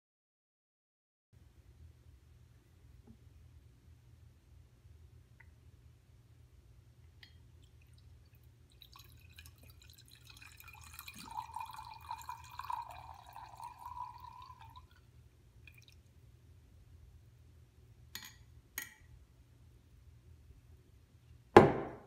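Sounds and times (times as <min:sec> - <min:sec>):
wine pouring into glass: 0:08.7 - 0:15.1.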